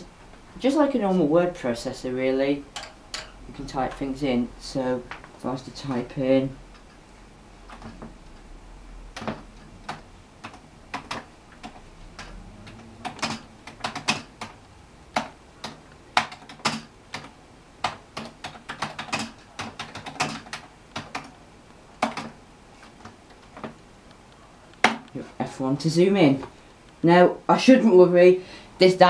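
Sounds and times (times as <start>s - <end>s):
keyboard keys clacking: 9.1s - 21.3s.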